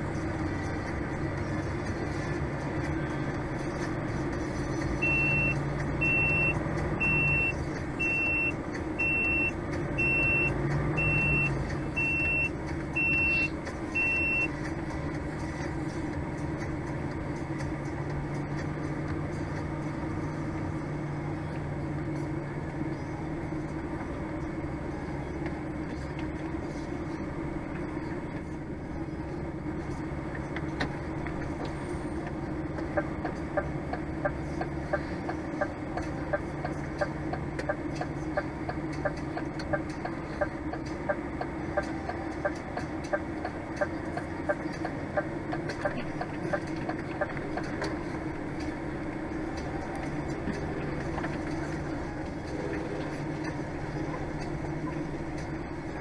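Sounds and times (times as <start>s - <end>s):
engine drone: 0.0s - 56.0s
reversing alarm beeping: 5.0s - 14.5s.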